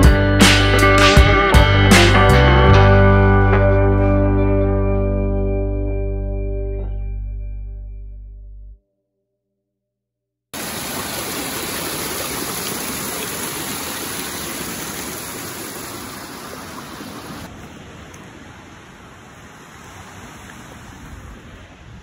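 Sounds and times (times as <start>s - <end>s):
waterfall rushing over rocks: 10.6s - 17.5s
surf and shallow running water: 10.6s - 22.0s.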